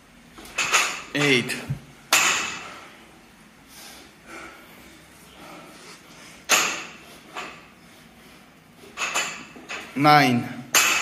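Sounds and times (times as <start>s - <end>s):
soft breaths: 2.4s - 9.0s.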